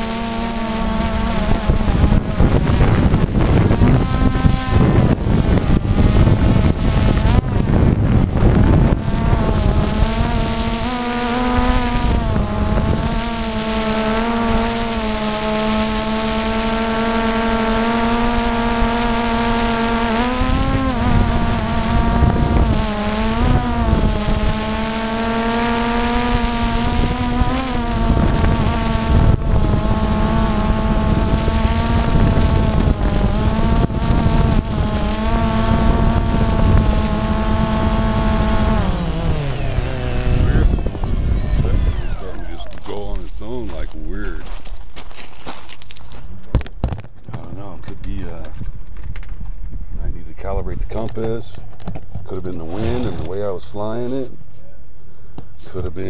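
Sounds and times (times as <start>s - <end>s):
drone propellers whining: 0.0s - 53.7s
low microphone rumble: 0.9s - 15.0s, 18.0s - 44.6s.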